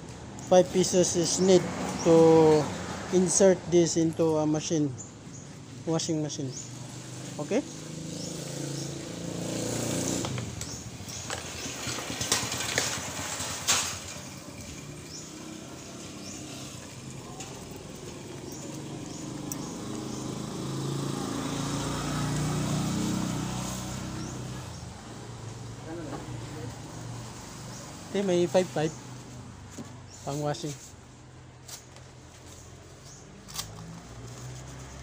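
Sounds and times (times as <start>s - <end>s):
small motorcycle engine running: 6.8s - 24.9s.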